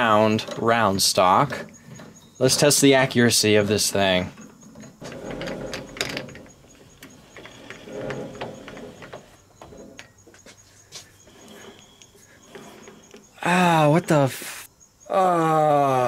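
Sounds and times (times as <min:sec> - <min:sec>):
light metal clicks and knocks: 0:00.0 - 0:10.5
faint squeak: 0:00.4 - 0:14.3.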